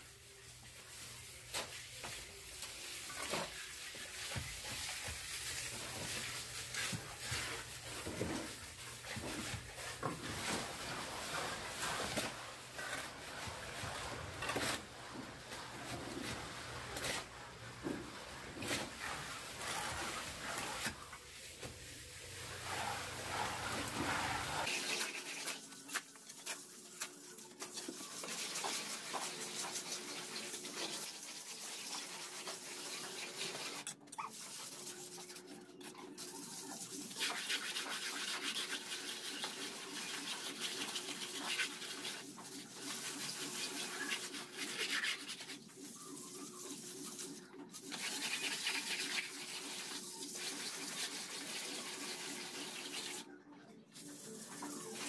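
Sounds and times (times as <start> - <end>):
trowel scraping mortar: 3.0 - 21.2.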